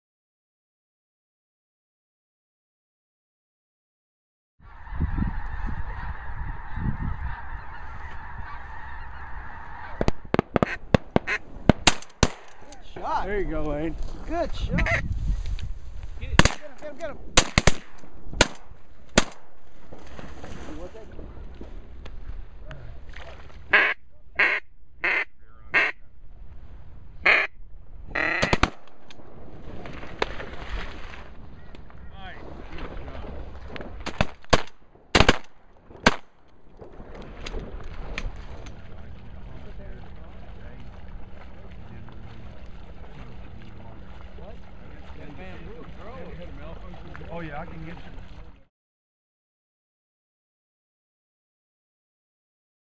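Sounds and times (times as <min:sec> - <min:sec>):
geese honking: 0:04.7 - 0:11.5, 0:14.6 - 0:15.1, 0:23.7 - 0:26.0, 0:27.2 - 0:28.7
duck call quacks: 0:04.8 - 0:11.4, 0:23.7 - 0:26.0, 0:27.2 - 0:28.6
shotgun shots: 0:10.0 - 0:12.7, 0:16.4 - 0:16.8, 0:17.4 - 0:19.5, 0:28.4 - 0:29.4, 0:34.0 - 0:36.4.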